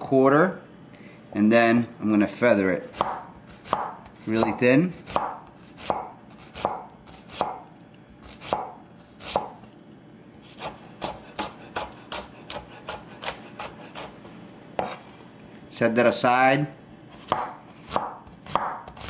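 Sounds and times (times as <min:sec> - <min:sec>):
knife slicing onion on wooden board: 0:02.8 - 0:07.6, 0:08.2 - 0:09.6, 0:10.4 - 0:15.2, 0:17.1 - 0:19.0.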